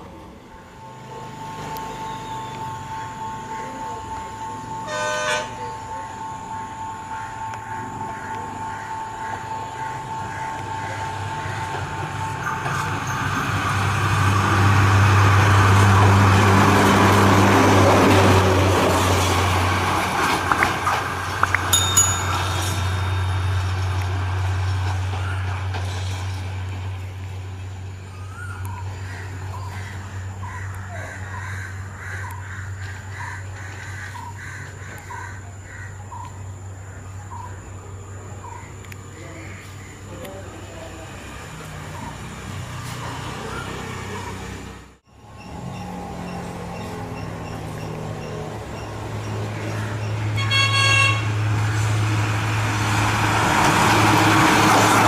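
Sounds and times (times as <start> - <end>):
diesel engine drone: 0.0 - 55.0
rail bus passing on rails: 0.0 - 55.0
crow cawing: 7.1 - 11.8, 29.0 - 36.1.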